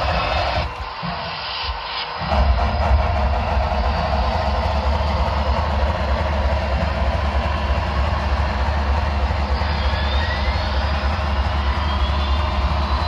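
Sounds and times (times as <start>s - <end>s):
model trains rumbling: 2.2s - 13.0s.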